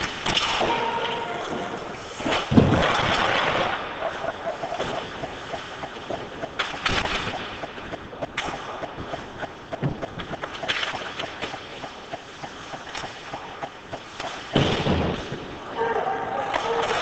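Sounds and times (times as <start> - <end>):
hockey sticks clacking: 0.0 - 15.4, 16.4 - 17.0
skates scraping on ice: 0.0 - 15.7
thud against hockey boards: 2.3 - 3.4.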